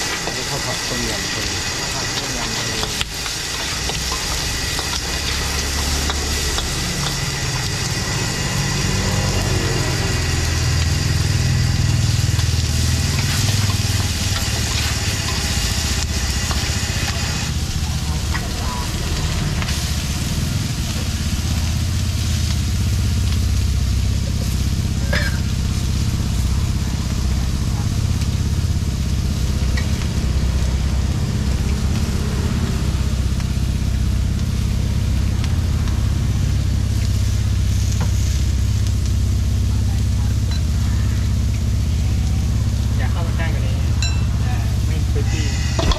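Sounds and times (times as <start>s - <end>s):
gas burner flame rush: 0.0s - 45.9s
squid and onions sizzling in wok: 0.0s - 45.9s
metal spatula scraping wok: 44.0s - 45.9s.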